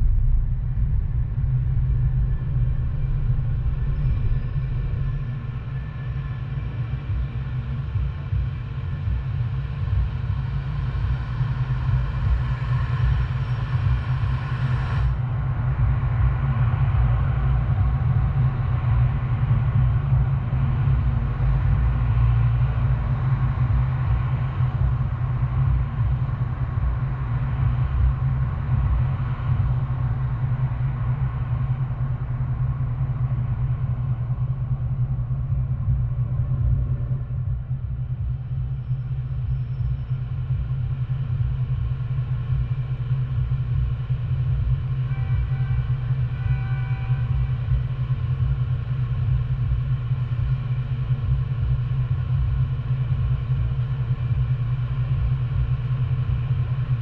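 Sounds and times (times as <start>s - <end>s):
car engine rumble: 0.0s - 7.2s.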